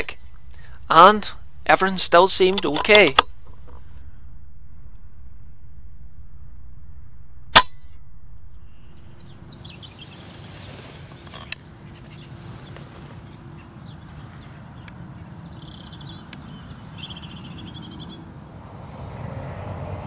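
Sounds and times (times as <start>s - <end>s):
air rifle shot: 7.5s - 8.0s
small birds calling: 8.4s - 20.0s.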